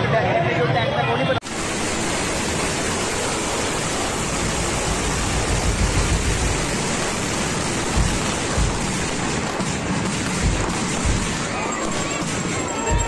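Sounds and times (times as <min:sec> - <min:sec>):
firecrackers and flames crackling: 0:01.4 - 0:13.0
low thumps: 0:04.8 - 0:11.4.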